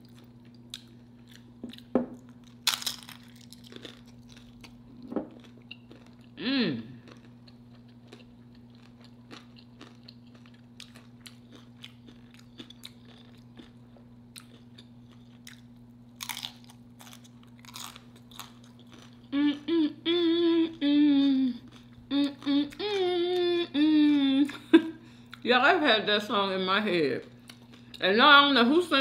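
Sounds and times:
chewing crunchy chips: 0:00.0 - 0:19.7, 0:21.5 - 0:23.4, 0:27.2 - 0:28.1
woman humming: 0:06.4 - 0:07.0, 0:19.3 - 0:25.0.

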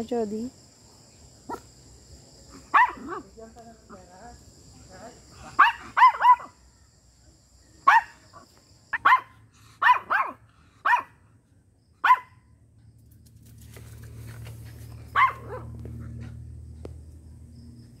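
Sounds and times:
small dog barking: 0:01.5 - 0:01.7, 0:02.5 - 0:03.3, 0:05.4 - 0:06.6, 0:07.8 - 0:11.2, 0:12.0 - 0:12.4, 0:15.1 - 0:15.8
low steady rumble: 0:11.3 - 0:18.0.

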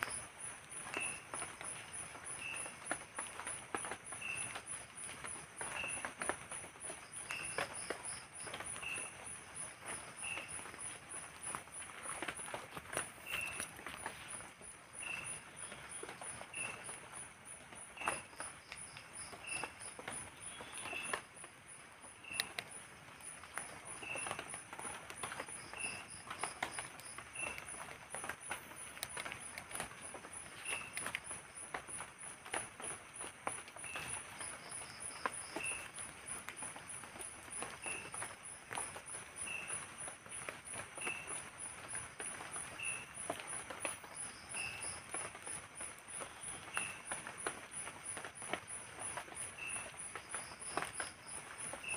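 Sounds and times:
chorus of night insects: 0:00.0 - 0:51.9
drizzle dripping on tarpaulin: 0:00.0 - 0:51.9
low insect chirp: 0:00.0 - 0:51.9
high-pitched pulsing insect call: 0:05.6 - 0:17.0, 0:23.5 - 0:32.0, 0:32.6 - 0:51.9
short insect chirp: 0:07.2 - 0:14.4, 0:22.2 - 0:22.8, 0:43.8 - 0:45.6.

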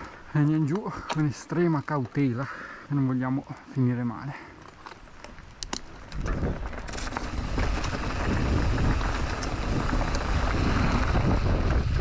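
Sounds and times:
tyres crunching over stones: 0:00.0 - 0:12.0
bike knocks and rattles: 0:05.2 - 0:12.0
wind rushing on microphone: 0:06.0 - 0:12.0.

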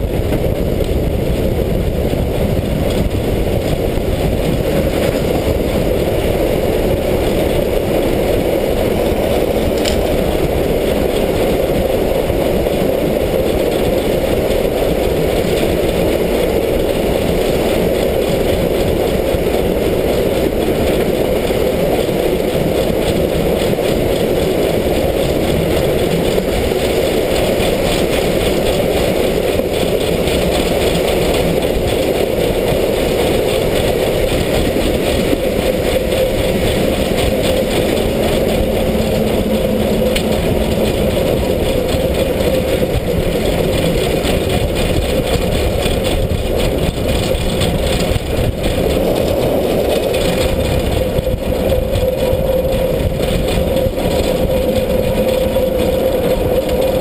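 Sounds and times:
steam locomotive running in tunnel: 0:00.0 - 0:57.0
sharp click: 0:09.6 - 0:10.2.

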